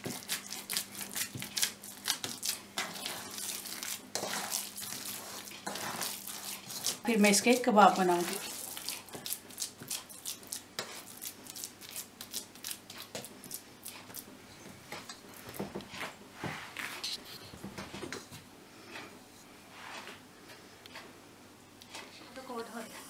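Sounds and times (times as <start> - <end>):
hands kneading wet meat: 0.0 - 14.4.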